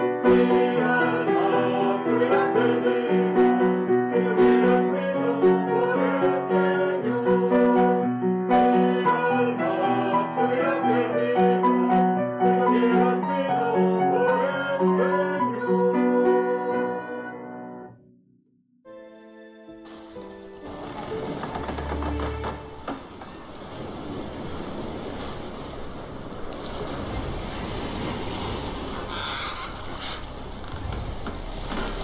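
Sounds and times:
group singing children's song: 0:00.0 - 0:17.5.

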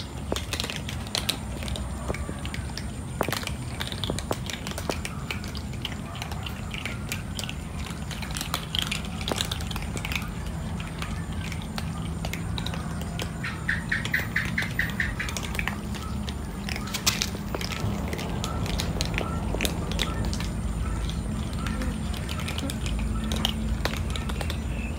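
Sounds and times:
cats crunching dry kibble: 0:00.0 - 0:24.9
rapid high chirps: 0:10.2 - 0:24.9
steady low rumble: 0:15.1 - 0:24.9.

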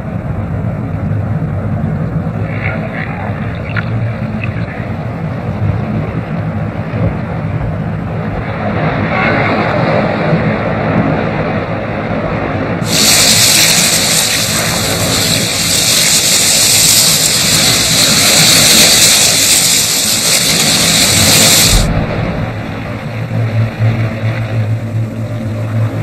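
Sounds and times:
churning water rumble: 0:00.0 - 0:26.0
hissing rush of water and bubbles: 0:02.2 - 0:07.5, 0:12.8 - 0:26.0.

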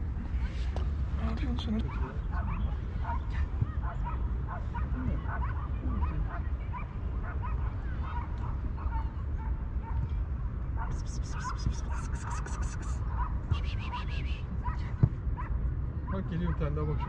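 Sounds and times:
kittens mewing: 0:10.9 - 0:13.0.

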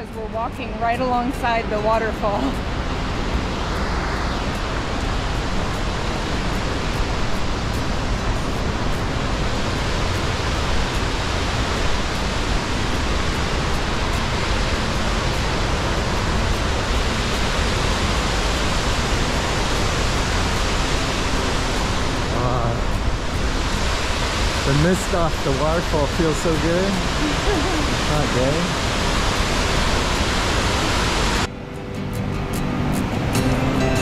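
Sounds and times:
waterfall rushing: 0:00.0 - 0:31.5.

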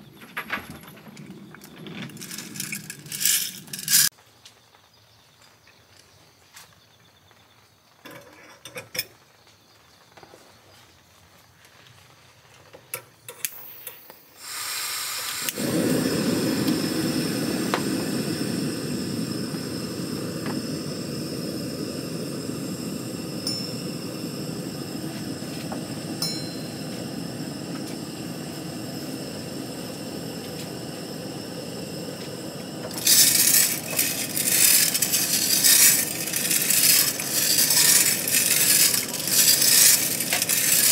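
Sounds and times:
coffee beans rattling in drum: 0:00.0 - 0:04.1, 0:32.6 - 0:40.9
gas burner rushing: 0:00.0 - 0:04.1, 0:13.3 - 0:40.9
metal clinks: 0:26.2 - 0:26.9.

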